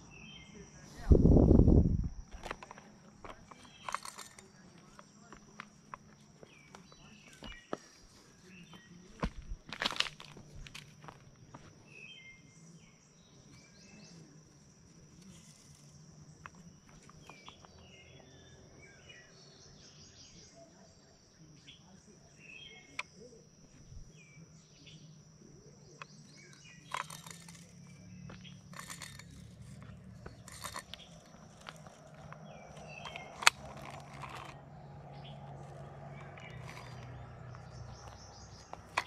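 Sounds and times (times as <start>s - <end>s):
birds chirping: 0.0s - 39.0s
sharp clicks and rustles: 2.0s - 8.2s, 26.0s - 39.0s.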